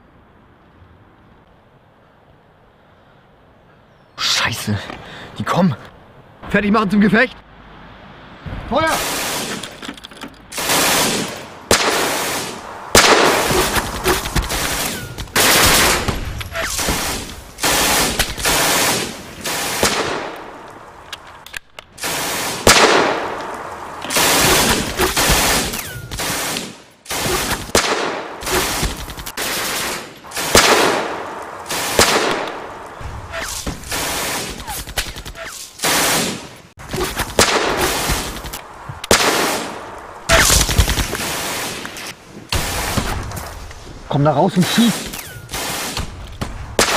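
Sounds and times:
rifle shots: 8.9s - 9.8s, 10.5s - 20.7s, 22.0s - 43.5s, 44.6s - 46.9s
machine gun bursts: 10.5s - 20.2s, 28.4s - 31.1s, 44.7s - 46.0s.

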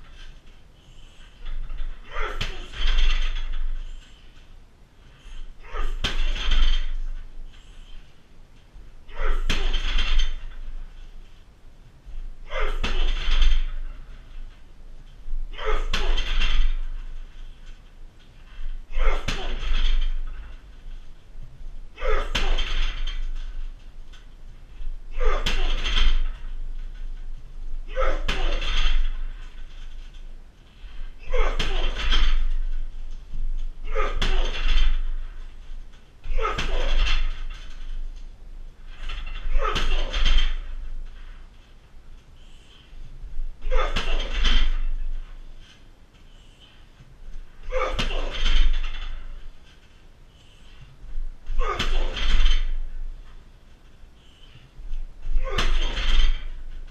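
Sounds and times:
kicks smacking heavy bag: 31.1s - 35.2s.

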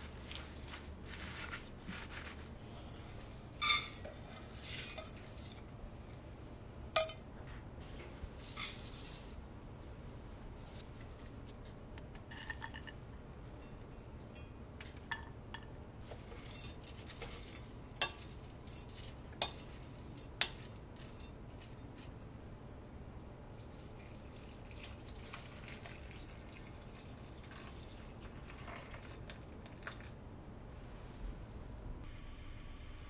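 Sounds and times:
water pouring into pot: 24.0s - 30.1s.

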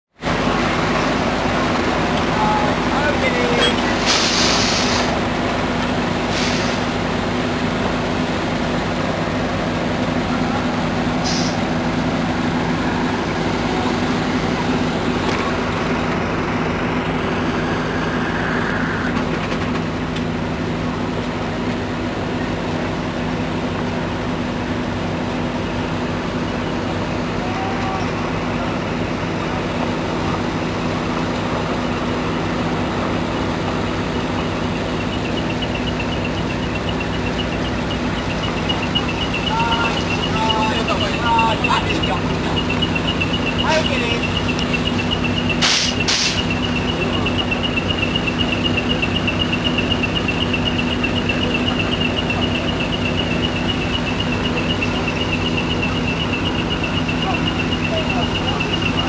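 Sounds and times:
diesel truck engine idling: 0.1s - 59.0s
short air hisses: 4.0s - 5.2s, 6.3s - 6.9s, 11.2s - 11.7s, 45.6s - 46.5s.

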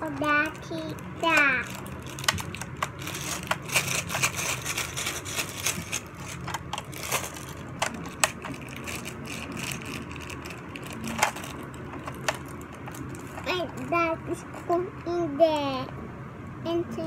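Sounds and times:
plastic bag rustling: 0.0s - 13.7s
low steady hum: 0.0s - 17.0s
plastic toy pieces clicking: 1.3s - 9.9s.

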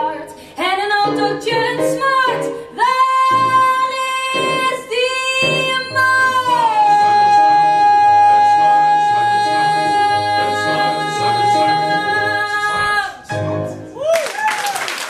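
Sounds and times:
instrumental accompaniment: 1.0s - 14.1s.

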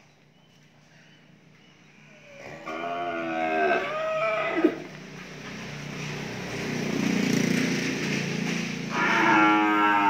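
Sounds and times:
cattle mooing: 2.4s - 4.9s, 8.9s - 10.0s.

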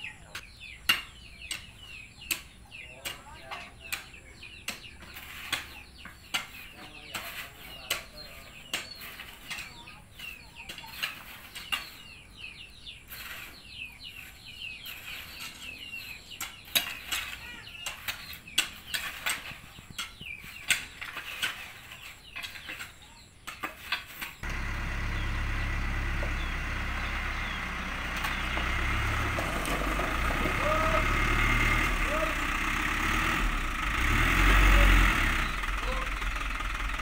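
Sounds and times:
birds chirping: 0.0s - 37.0s
hoes chopping into soil: 0.3s - 12.0s
diesel truck engine idling: 24.4s - 37.0s.

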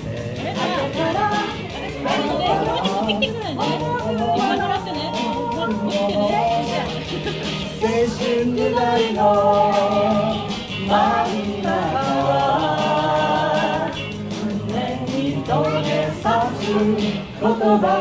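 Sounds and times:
backing track with steady beat: 0.0s - 18.0s
woman singing into a microphone: 0.4s - 7.0s.

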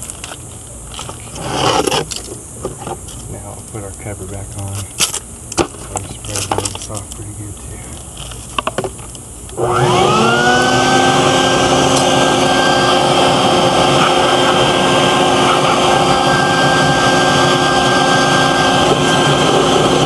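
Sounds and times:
shop vacuum motor whining: 9.5s - 20.0s.

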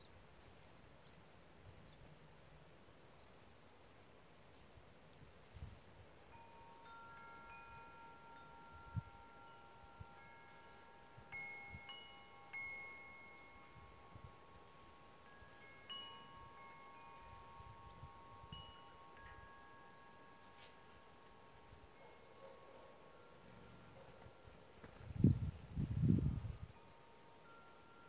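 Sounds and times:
wind chimes ringing: 6.2s - 24.8s, 25.6s - 28.0s.

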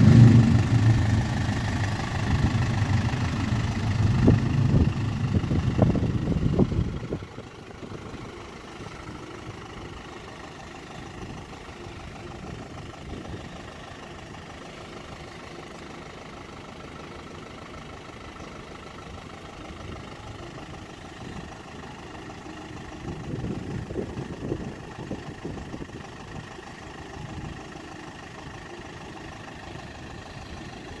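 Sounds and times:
low rumble: 0.0s - 7.3s
diesel engine idling: 0.0s - 31.0s.

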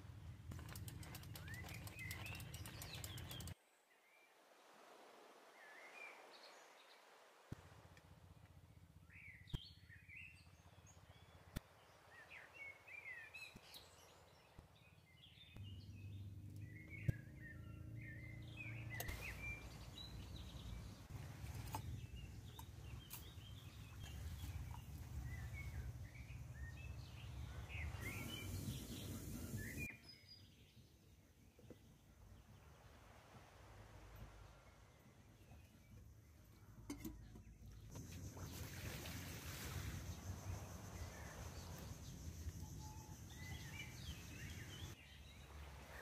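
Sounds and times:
birds chirping: 0.6s - 3.6s, 12.0s - 30.8s, 39.5s - 45.5s.

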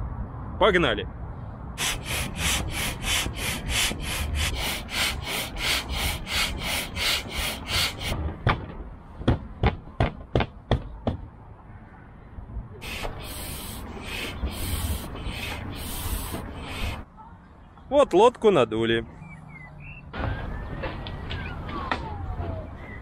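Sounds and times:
hand air pump strokes hissing: 1.8s - 8.2s, 12.8s - 17.0s.

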